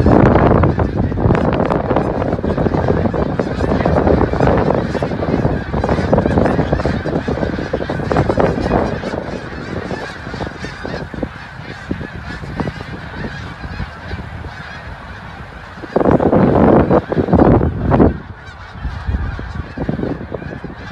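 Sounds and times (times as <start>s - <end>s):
geese honking: 0.0s - 20.9s
wind rumble on microphone: 0.0s - 20.9s.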